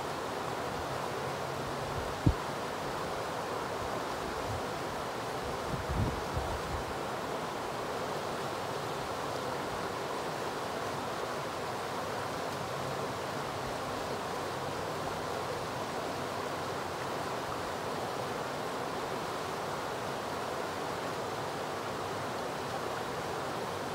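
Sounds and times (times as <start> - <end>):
river rushing over rocks: 0.0 - 23.9.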